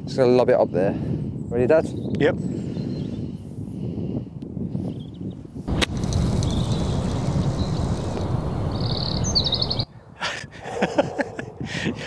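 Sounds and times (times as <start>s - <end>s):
outdoor rushing noise: 5.7s - 9.8s
bird trilling: 6.3s - 9.9s.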